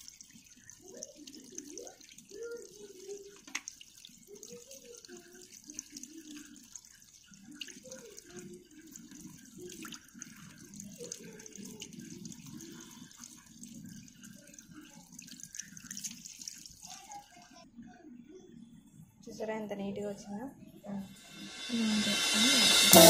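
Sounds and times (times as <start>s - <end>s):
tap water running into basin: 0.0s - 17.6s.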